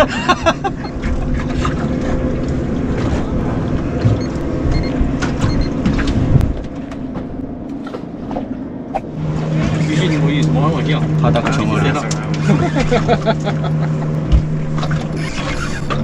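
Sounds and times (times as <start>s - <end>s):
small boat motor running: 0.0s - 16.0s.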